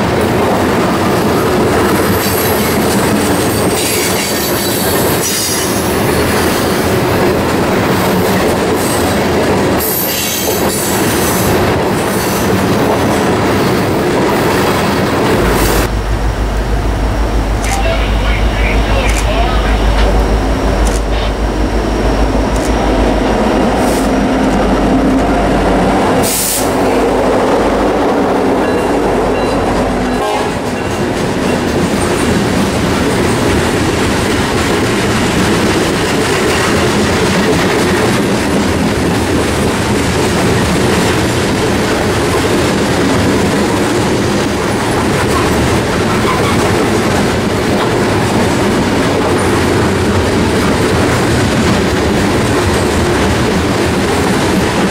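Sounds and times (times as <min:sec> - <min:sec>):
diesel locomotive engine rumble: 0:11.4 - 0:54.9.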